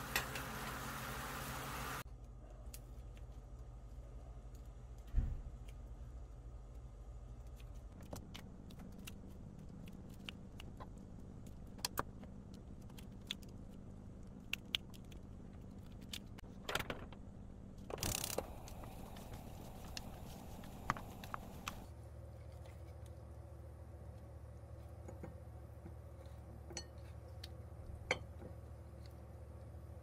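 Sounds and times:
low hum: 0.0s - 30.0s.

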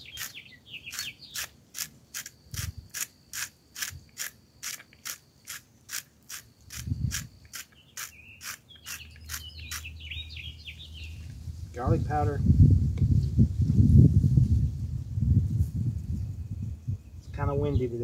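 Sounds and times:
salt grinder crunching: 0.0s - 9.9s.

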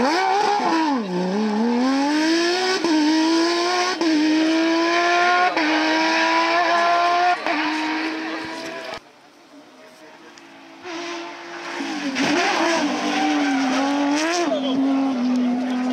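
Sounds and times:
car engine revving with upshifts: 0.0s - 9.0s, 10.2s - 15.9s.

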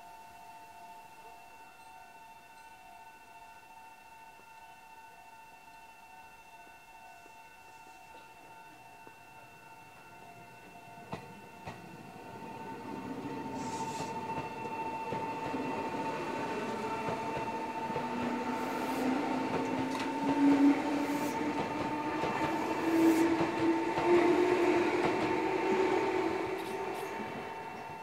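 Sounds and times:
electric train motor hum: 10.4s - 28.0s.

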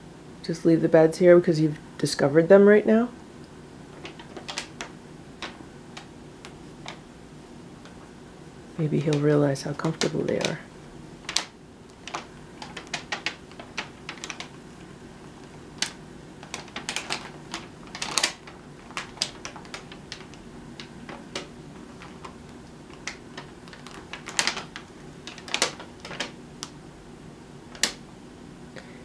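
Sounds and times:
stiff paper crinkling: 11.3s - 26.4s.

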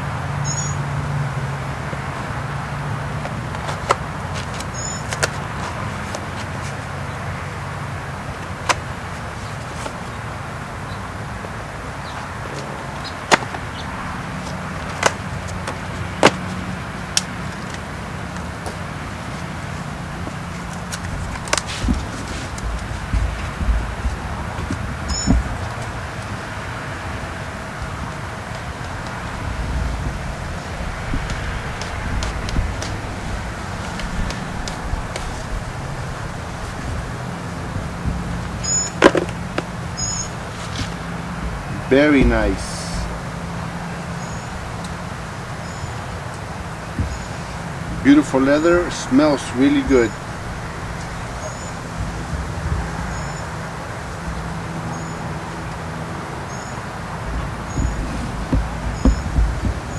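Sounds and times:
handling rustle: 3.2s - 51.6s, 57.1s - 59.9s
steady low rumble: 5.4s - 38.7s, 39.3s - 53.1s.

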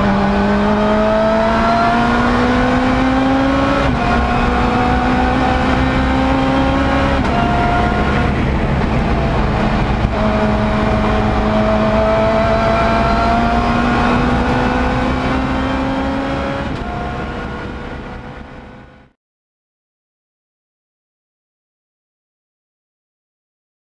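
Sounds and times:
tyre and road noise: 0.0s - 18.4s
race car engine accelerating: 0.0s - 19.2s.

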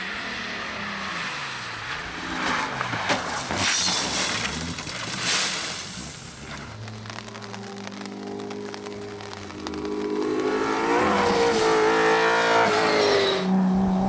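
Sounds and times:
stones spraying against car: 3.0s - 11.9s
race car engine revving: 7.1s - 14.0s.

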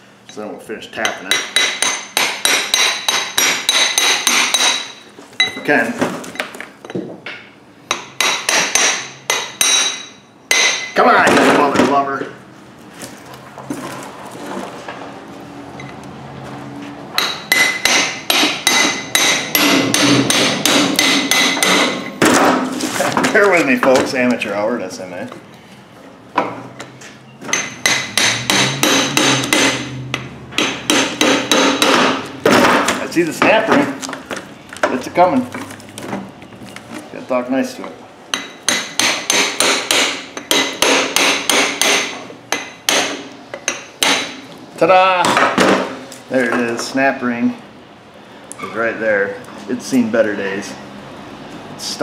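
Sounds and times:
hammer tapping metal punch: 1.0s - 5.6s, 6.4s - 11.0s, 17.2s - 22.6s, 27.4s - 33.6s, 38.3s - 44.4s.

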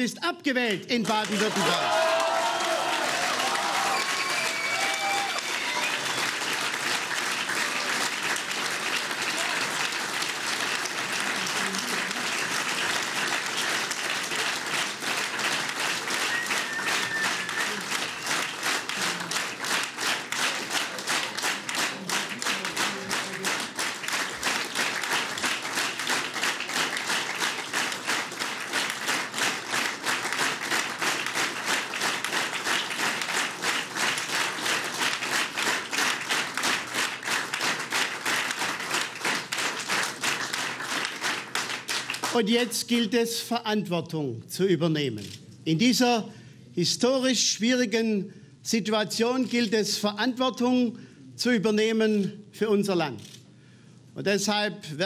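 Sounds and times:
crowd applauding: 1.0s - 42.7s.

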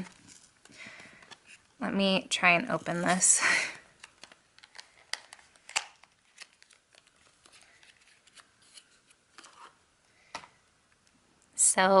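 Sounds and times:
packaging clicks and rustling: 3.9s - 9.8s.

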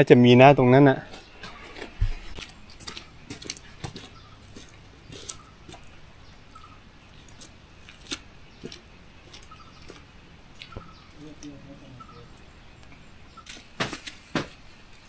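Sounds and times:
leaves rustling: 0.8s - 15.0s
herb stems snapping: 12.8s - 15.0s.

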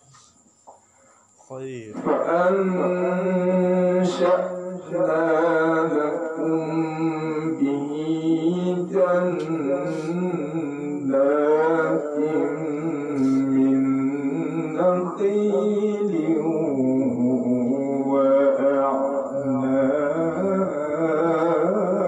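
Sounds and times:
man reciting melodically: 1.5s - 22.0s
short breaths: 9.8s - 10.2s, 13.2s - 13.5s.

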